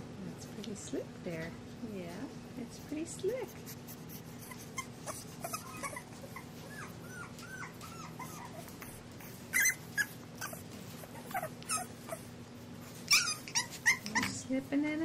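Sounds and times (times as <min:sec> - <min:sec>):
puppies yipping: 0:04.2 - 0:14.4
puppies whining: 0:04.2 - 0:14.5.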